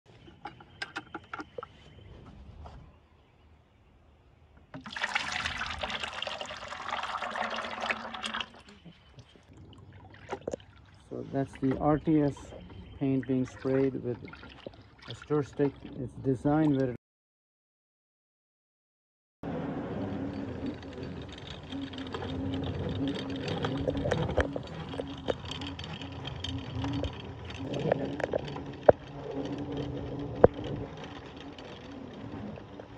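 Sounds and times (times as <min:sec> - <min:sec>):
thick paint pouring into bucket: 0:04.8 - 0:08.8
pulsing machine hum: 0:05.1 - 0:16.3, 0:19.4 - 0:32.9.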